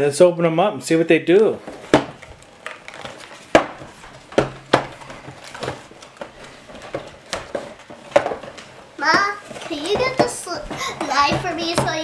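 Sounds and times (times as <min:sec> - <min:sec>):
packaging handling noise: 0:01.3 - 0:12.0
box knocking on wooden table: 0:09.1 - 0:12.0.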